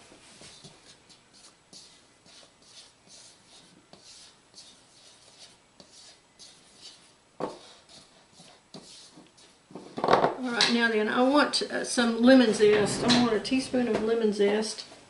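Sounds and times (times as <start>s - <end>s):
spatula scraping flour in bowl: 0.4s - 10.0s.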